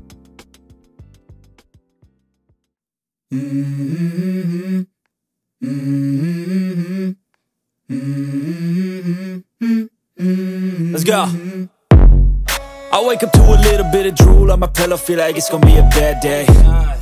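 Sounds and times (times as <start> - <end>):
person humming a melody: 3.3 - 4.9, 5.6 - 7.2, 7.9 - 11.8, 12.9 - 17.0.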